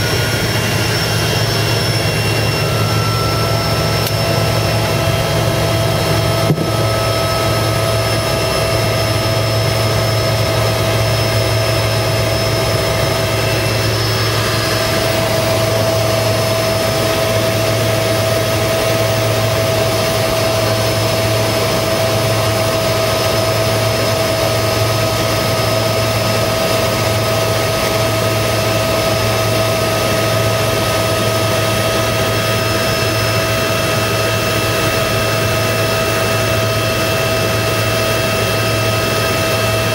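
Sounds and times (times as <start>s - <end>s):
boat engine droning: 0.0s - 39.9s.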